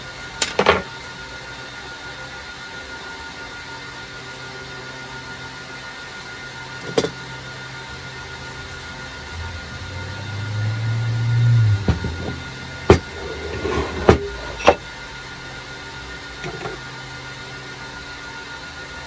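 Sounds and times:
vise rumbling across bench: 10.7 - 14.8.

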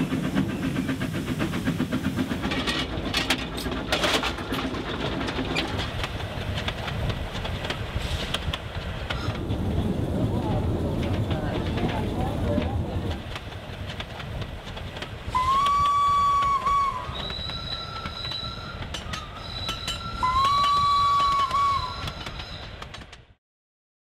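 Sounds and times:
train rumbling on rails: 0.0 - 23.4
steam locomotive whistle: 15.3 - 22.6.

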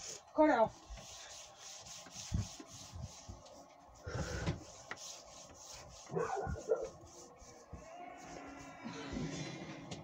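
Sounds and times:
hand rubbing microphone: 1.5 - 9.5.

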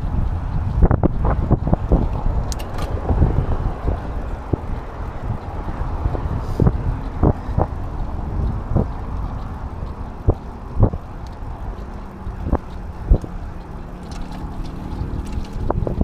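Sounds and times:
steady low rumble: 0.0 - 16.0
wind rushing over microphone: 0.0 - 16.0.

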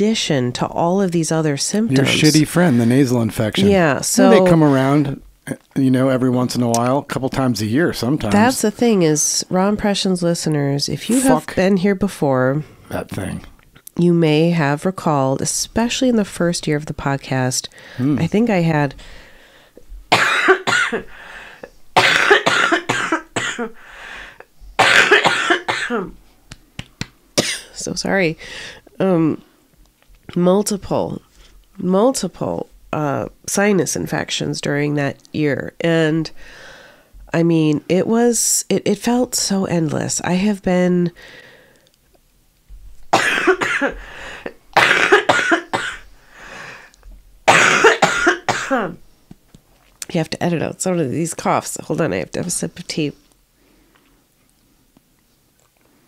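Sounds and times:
woman coughing hard: 2.0 - 2.4, 3.6 - 5.0, 11.1 - 11.4, 20.1 - 21.1, 22.0 - 23.8, 24.8 - 26.1, 27.4 - 27.8, 43.1 - 44.0, 44.8 - 46.0, 47.5 - 49.0.

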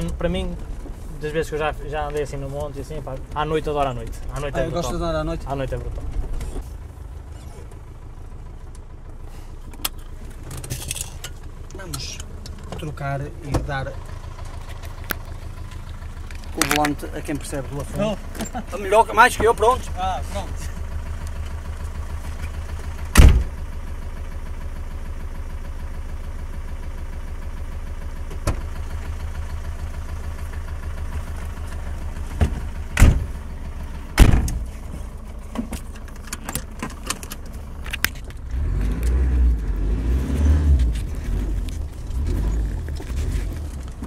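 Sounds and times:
diesel engine idling: 0.0 - 44.0
car doors slamming: 23.1 - 23.6, 32.3 - 33.4, 34.1 - 34.7.

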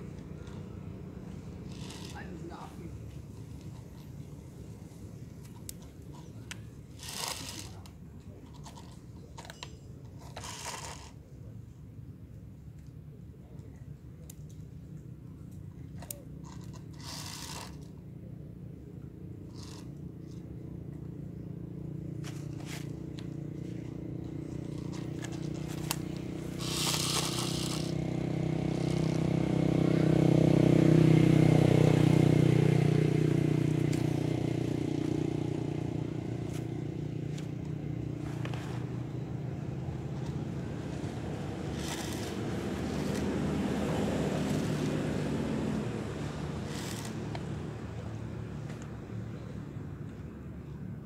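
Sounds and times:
vehicle engine running: 0.0 - 11.9, 14.0 - 51.0
plastic toy clicks and scrapes: 1.6 - 2.4, 5.4 - 11.2, 15.9 - 18.0, 19.5 - 20.4, 24.7 - 28.0, 41.7 - 43.3, 46.6 - 47.6.

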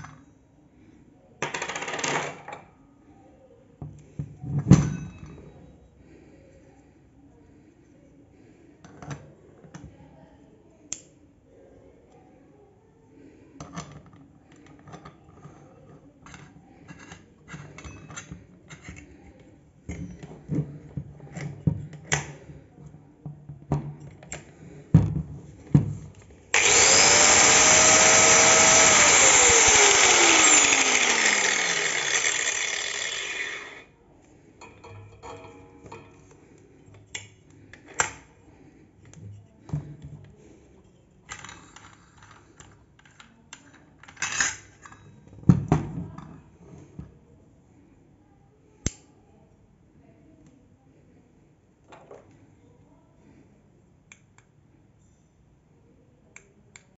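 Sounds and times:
angle grinder whining: 26.5 - 33.9.

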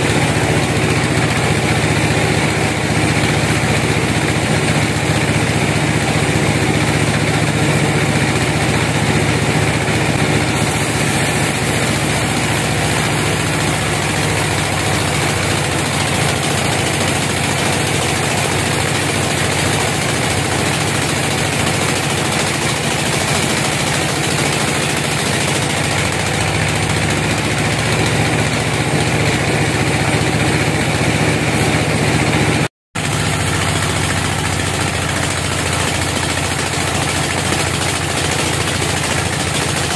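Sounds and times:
band sawmill humming: 0.0 - 39.9
saw blade hissing through wood: 10.5 - 15.1.

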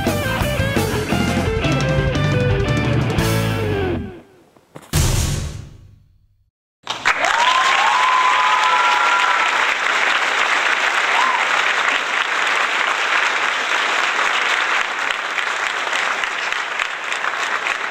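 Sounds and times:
crowd clapping: 6.8 - 17.9.

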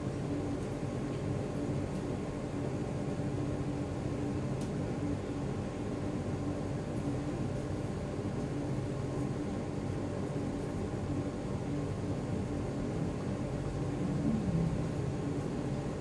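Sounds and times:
room hum and hiss: 0.0 - 16.0.

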